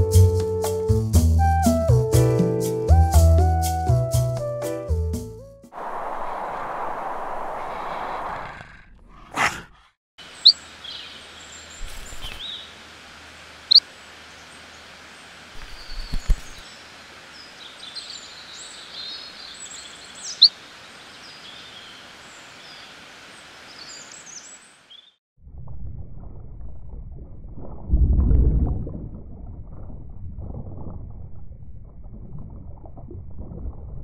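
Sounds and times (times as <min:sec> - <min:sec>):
small birds chirping: 0:10.2 - 0:12.8, 0:13.6 - 0:25.2
steady background hiss: 0:10.2 - 0:25.0.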